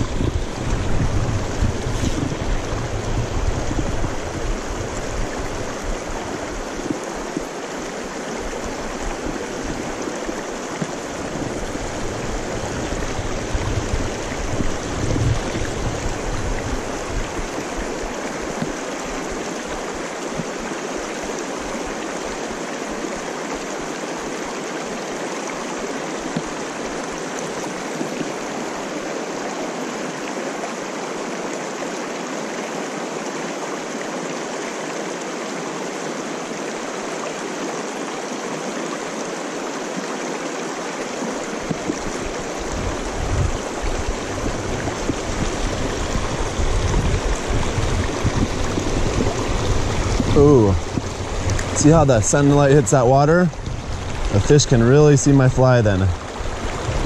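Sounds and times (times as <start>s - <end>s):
wind buffeting microphone: 0.0s - 7.0s, 8.4s - 19.3s, 41.6s - 57.0s
river rushing over rocks: 0.0s - 57.0s.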